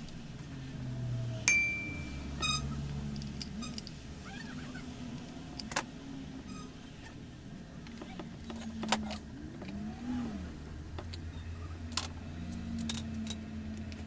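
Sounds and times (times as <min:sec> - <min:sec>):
low steady hum: 0:00.0 - 0:14.0
metallic clink: 0:01.5 - 0:02.4.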